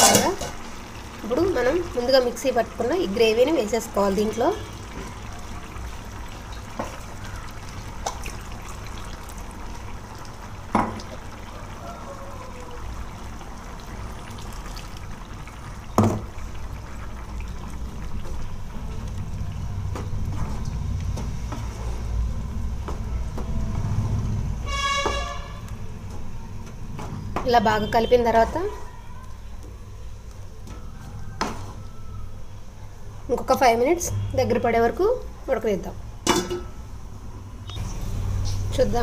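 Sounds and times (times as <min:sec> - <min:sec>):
gravy bubbling in a pan: 0:00.0 - 0:26.5
horn-like toot: 0:24.6 - 0:25.7.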